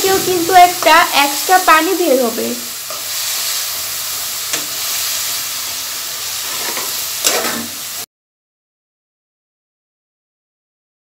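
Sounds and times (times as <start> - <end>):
vermicelli sizzling in frying pan: 0.0 - 8.1
metal spatula scraping pan: 2.8 - 3.7, 6.2 - 7.8.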